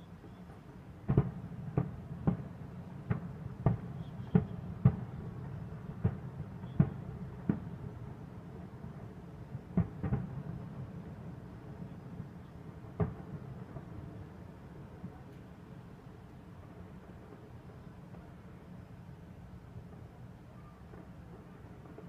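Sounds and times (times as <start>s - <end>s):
distant fireworks bangs: 0.3s - 15.2s, 19.8s - 22.0s.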